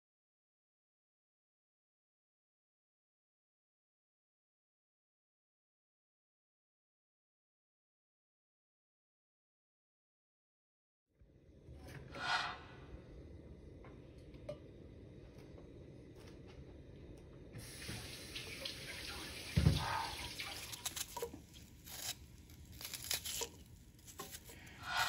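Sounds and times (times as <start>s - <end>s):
oil hissing into a pan: 17.6s - 21.8s.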